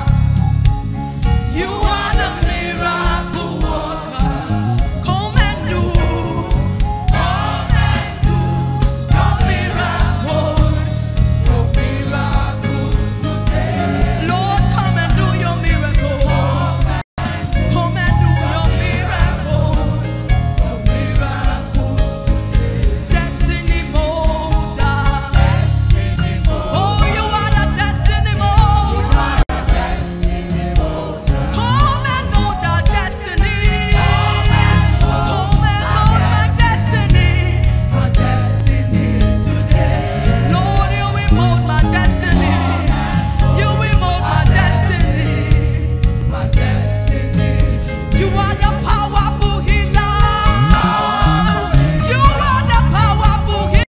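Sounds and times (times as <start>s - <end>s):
steady beat: 0.0s - 20.0s, 21.2s - 47.3s, 50.0s - 53.2s
electric bass: 0.0s - 53.9s
keyboard: 0.0s - 53.9s
woman singing into microphone: 1.5s - 7.1s, 26.7s - 29.5s, 31.4s - 47.4s, 48.1s - 53.9s.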